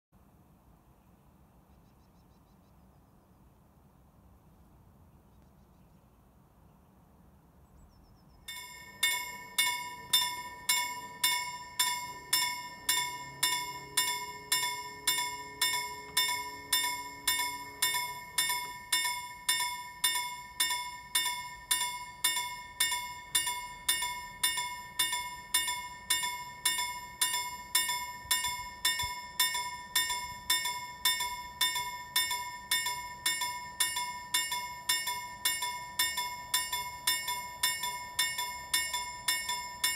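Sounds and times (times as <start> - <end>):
level crossing warning bell: 8.5 - 39.9.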